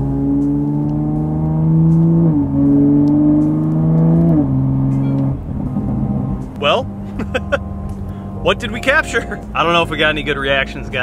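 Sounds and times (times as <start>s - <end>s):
car engine accelerating hard: 0.0s - 11.0s.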